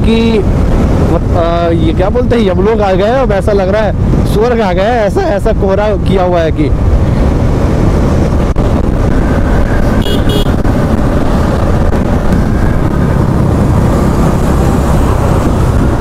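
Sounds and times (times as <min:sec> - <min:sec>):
motorcycle riding noise: 0:00.0 - 0:16.0
motorcycle horn toot: 0:10.0 - 0:10.6.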